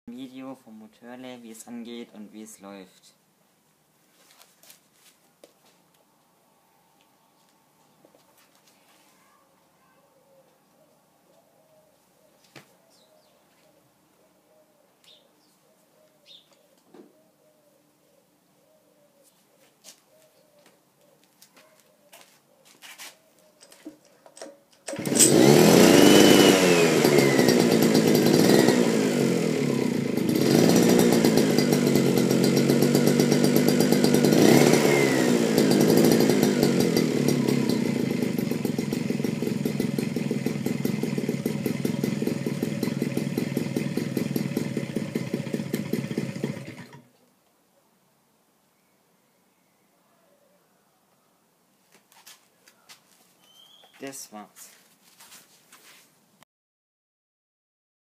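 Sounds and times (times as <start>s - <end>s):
two-stroke engine running: 24.8s - 47.0s.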